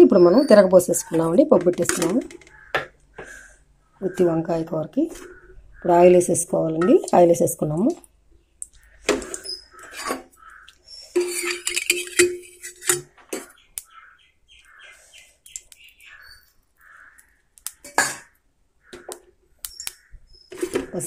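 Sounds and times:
bird chirping: 0.0s - 6.5s, 8.0s - 12.3s, 13.1s - 21.0s
metal pan and utensils clinking: 11.2s - 13.5s, 17.8s - 18.3s.

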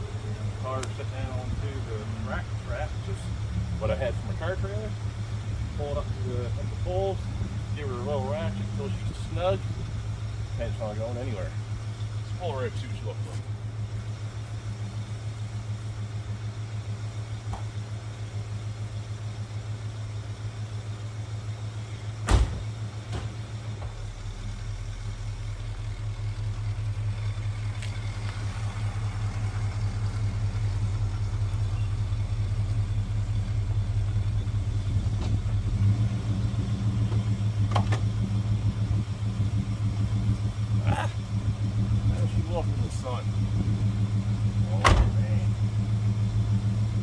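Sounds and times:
car engine idling: 0.0s - 47.0s
car door shutting: 22.2s - 24.1s, 35.1s - 35.6s, 37.1s - 38.1s, 44.7s - 45.3s.

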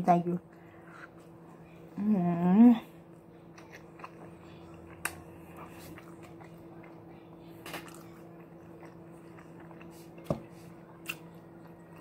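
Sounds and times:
steady low hum: 0.0s - 12.0s
chewing: 3.5s - 10.3s.

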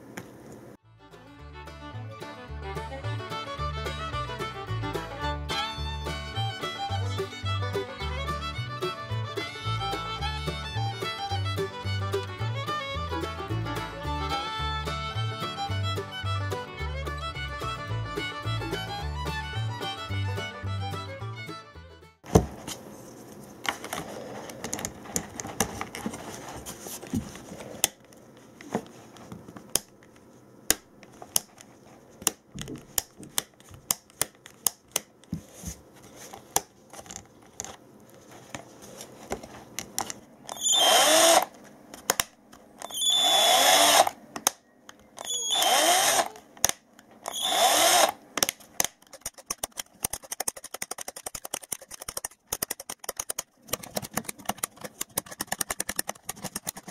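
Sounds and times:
plastic parts clicking and tapping: 23.7s - 26.2s, 29.4s - 35.4s, 36.3s - 37.8s, 39.2s - 40.6s, 41.5s - 43.0s, 46.3s - 47.4s, 48.4s - 56.9s
power tool motor whirring: 40.5s - 41.5s, 42.8s - 44.2s, 45.2s - 46.4s, 47.3s - 48.2s.

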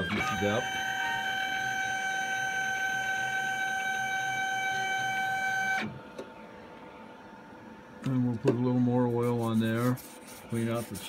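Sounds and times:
spindle whining: 0.0s - 6.5s.

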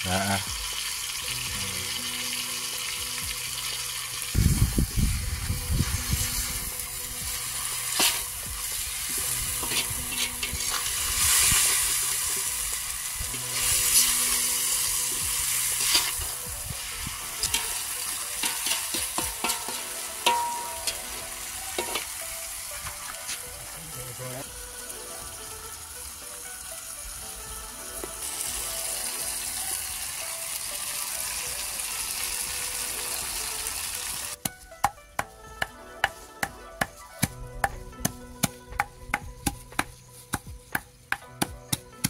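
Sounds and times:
vegetables sizzling in a wok: 0.0s - 34.4s
metal skimmer scraping a pan: 7.3s - 22.2s.

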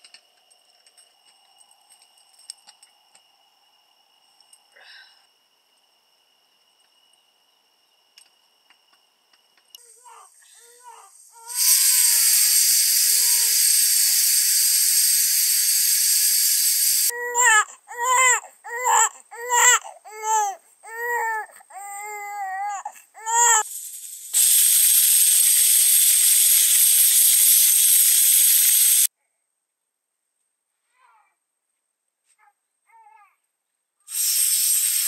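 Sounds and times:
steady hiss: 0.0s - 17.2s, 23.3s - 29.1s, 34.1s - 35.0s
baby crying: 9.8s - 12.3s, 17.1s - 23.6s.

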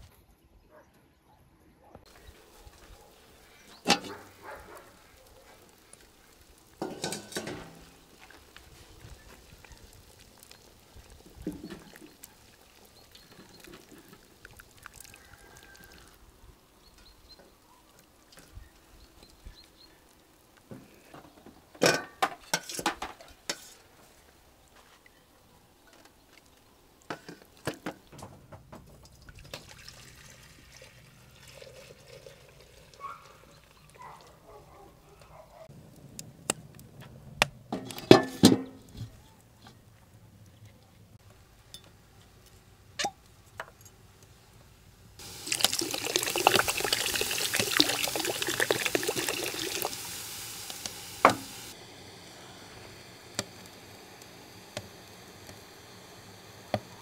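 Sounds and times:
tongs and pots clattering: 3.7s - 4.5s, 6.8s - 8.0s, 21.8s - 23.8s
cauldron lid clanking: 3.8s - 4.2s, 6.8s - 7.9s
liquid pouring into glass bowl: 11.9s - 16.2s, 45.2s - 50.2s.

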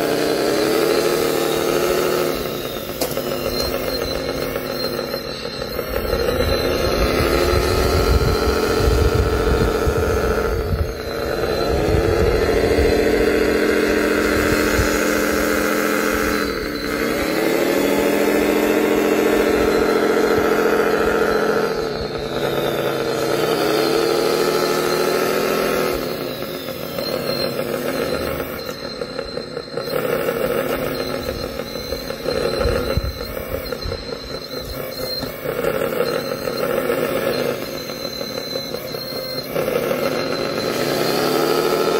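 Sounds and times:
toy loader motor whine: 0.0s - 41.9s.

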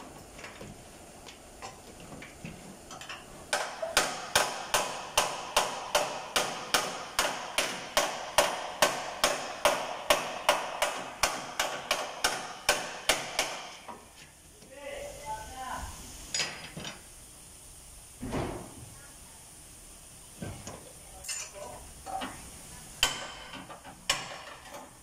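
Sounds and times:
hammer striking steel: 3.5s - 13.9s, 23.0s - 24.6s.

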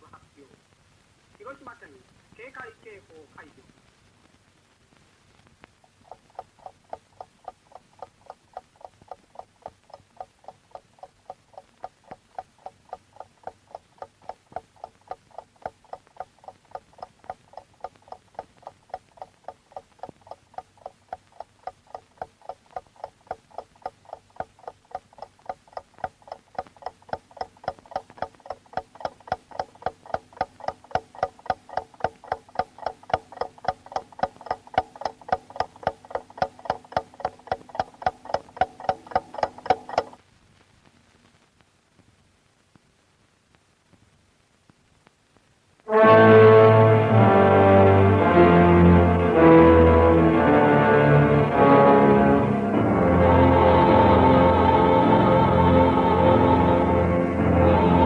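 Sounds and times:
wall clock ticking: 5.8s - 40.2s.

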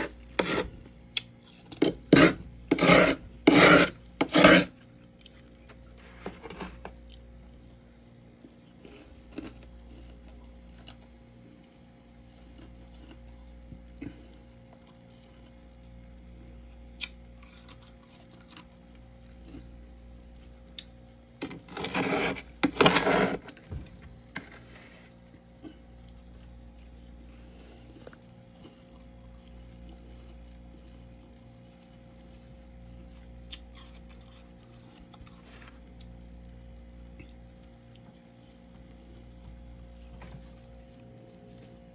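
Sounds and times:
spoon scraping frost: 0.0s - 4.8s, 21.4s - 23.6s, 24.4s - 25.2s
steady low hum: 0.0s - 41.9s.

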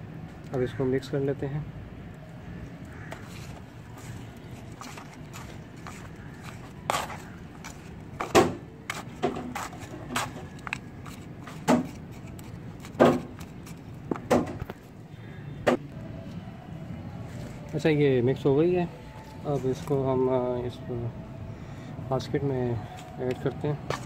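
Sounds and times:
metal trowel scraping soil: 3.1s - 13.8s.

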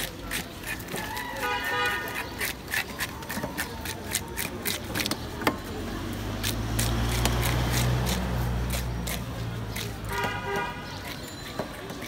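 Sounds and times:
fish scaler rasping over scales: 0.0s - 5.4s.

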